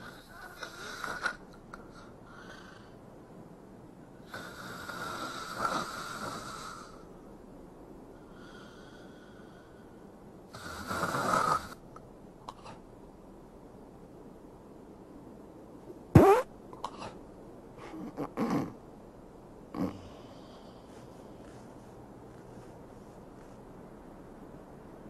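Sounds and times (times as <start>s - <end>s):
quiet breaths: 0.0s - 16.1s, 16.7s - 25.0s
woman snoring: 4.3s - 7.0s, 10.5s - 11.8s, 19.7s - 20.6s.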